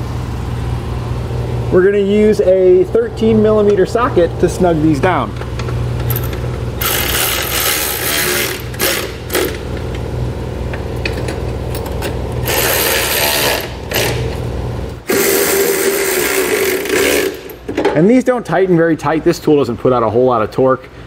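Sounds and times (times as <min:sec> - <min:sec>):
cordless electric ratchet whirring: 0:06.1 - 0:09.7, 0:12.4 - 0:14.3, 0:15.0 - 0:17.6.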